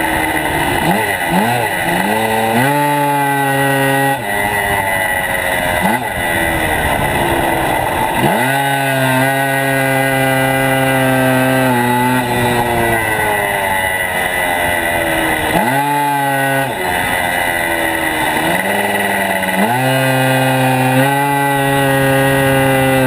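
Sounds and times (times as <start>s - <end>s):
motorcycle engine revving: 0.0s - 23.0s.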